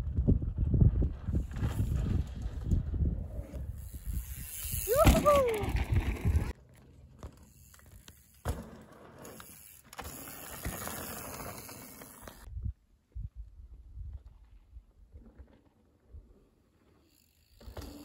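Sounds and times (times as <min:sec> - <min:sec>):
wind rumble on microphone: 0:00.0 - 0:06.5, 0:12.5 - 0:15.2
bike tyre noise: 0:00.0 - 0:12.5, 0:13.9 - 0:18.0.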